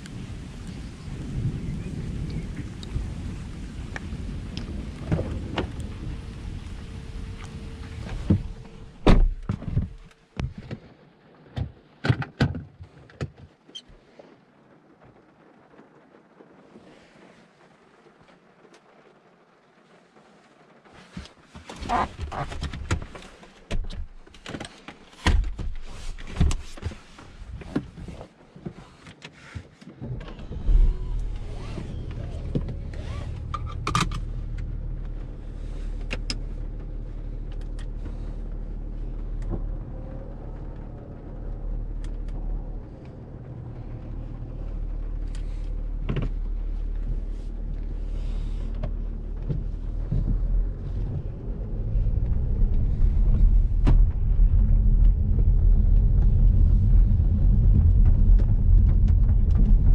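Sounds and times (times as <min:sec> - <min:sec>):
diesel engine starting and idling: 0:30.0 - 0:59.9
car accelerating: 0:30.2 - 0:59.9.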